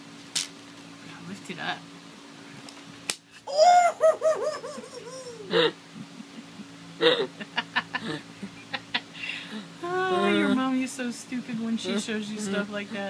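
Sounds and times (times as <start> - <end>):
young man laughing: 3.4 - 10.2.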